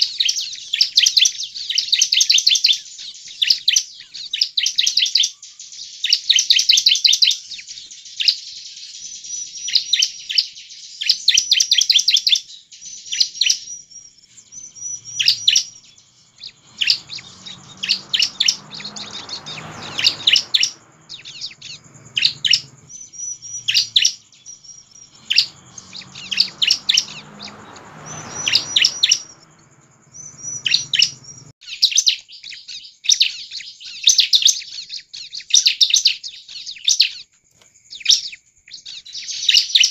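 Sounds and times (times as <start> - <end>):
bird down-slurred whistles: 0.0 - 37.2
bird high chirps: 0.0 - 39.9.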